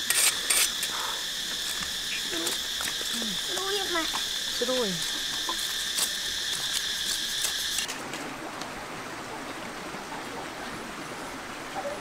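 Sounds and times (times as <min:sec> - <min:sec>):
insect chorus: 0:00.0 - 0:08.0.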